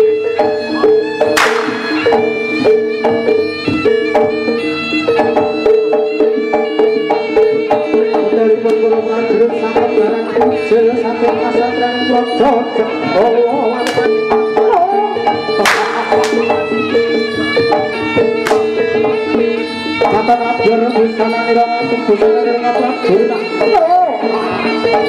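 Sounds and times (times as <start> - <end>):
pitched melody over drone: 0.0 - 5.7, 6.3 - 25.0
drums and percussion beat: 0.0 - 12.2, 12.9 - 20.8, 23.5 - 25.0
whip crack: 1.4 - 2.4, 15.6 - 16.5, 18.5 - 18.7.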